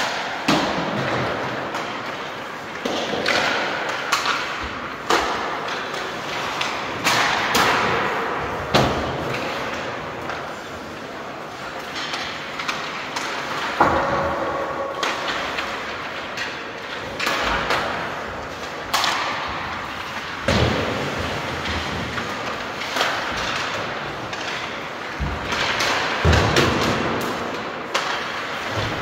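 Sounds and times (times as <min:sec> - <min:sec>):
reverberant thumps and knocks: 0:13.5 - 0:29.0.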